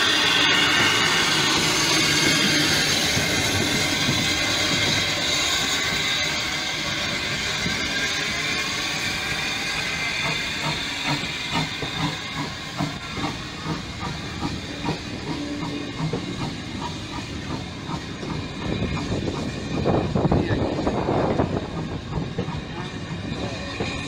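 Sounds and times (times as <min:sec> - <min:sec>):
steam locomotive hissing: 0:00.0 - 0:24.0.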